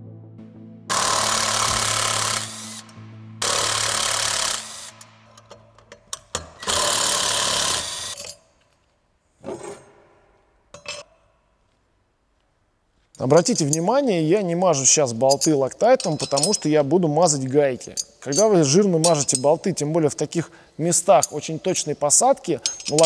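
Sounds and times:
power tool bursts: 0.9 - 5.2, 6.6 - 8.3.

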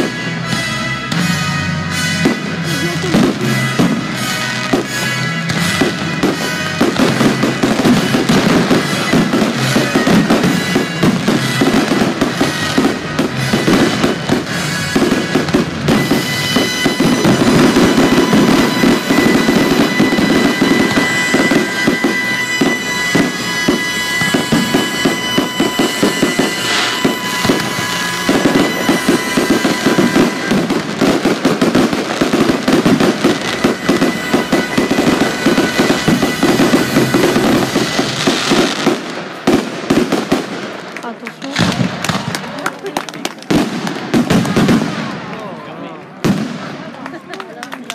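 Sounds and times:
music: 0.0 - 38.5
fireworks bursting and crackling: 0.0 - 47.9.

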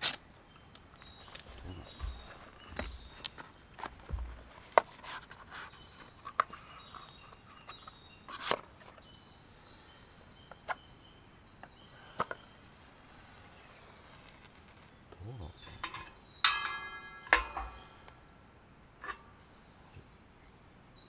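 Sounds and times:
camp gear clicks and knocks: 0.0 - 9.1, 11.6 - 12.5, 15.5 - 18.2
birds singing faintly: 0.0 - 21.0.

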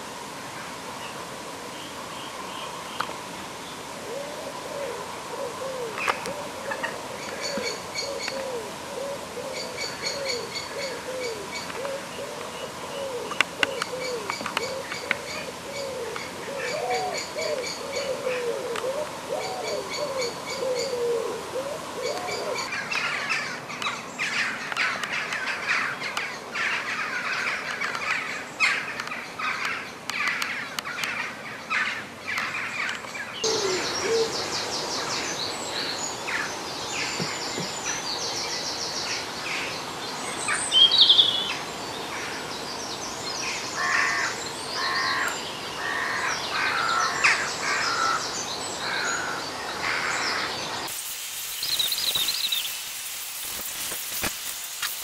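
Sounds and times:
birds chirping and trilling: 1.8 - 54.3
low wavering bird call: 4.0 - 22.8, 33.4 - 35.1.

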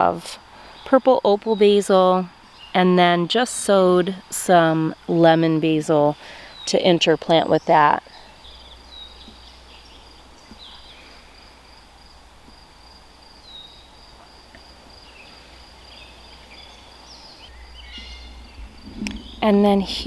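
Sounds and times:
high insect trill: 1.6 - 20.0
bird chirps: 6.5 - 11.2, 15.0 - 20.0
faint low rumble: 8.2 - 20.0.

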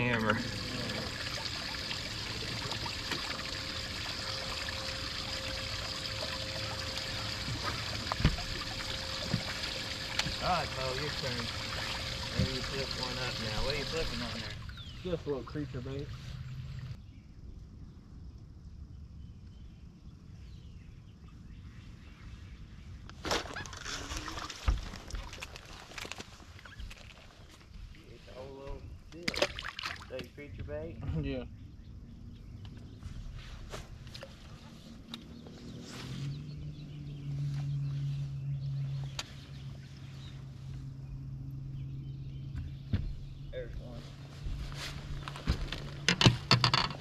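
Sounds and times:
water trickling: 0.0 - 17.0, 29.2 - 30.5
faint steady hum: 0.0 - 22.3
low steady rumble: 0.0 - 23.0, 30.3 - 47.0.

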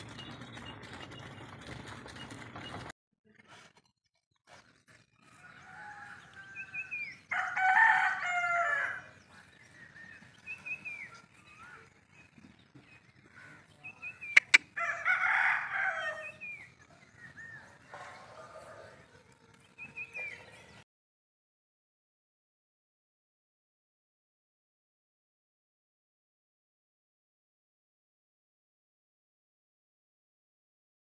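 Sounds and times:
rooster crowing: 5.3 - 9.2, 14.8 - 16.4, 17.9 - 19.3
small birds chirping: 9.0 - 14.8, 16.2 - 20.8.

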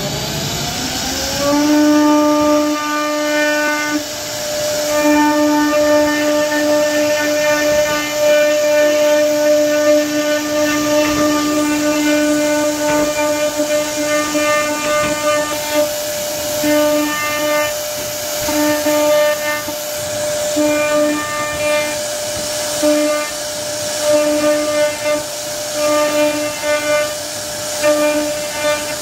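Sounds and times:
router spindle high whine: 0.0 - 29.0.

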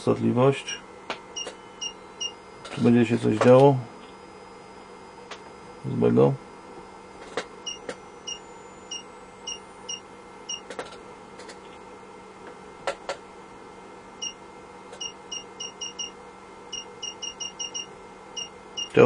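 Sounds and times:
faint steady hum: 0.0 - 19.0
short electronic beeps: 1.4 - 2.4, 7.6 - 10.6.

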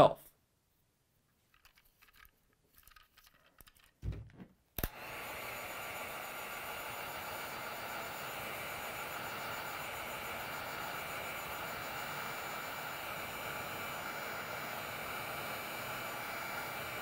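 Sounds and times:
heat gun blowing air: 4.8 - 17.0.

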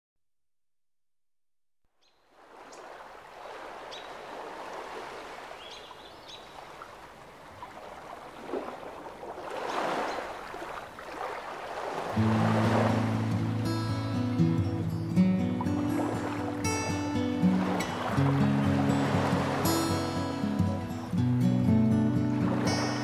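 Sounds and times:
ocean surf washing in: 8.4 - 23.0.

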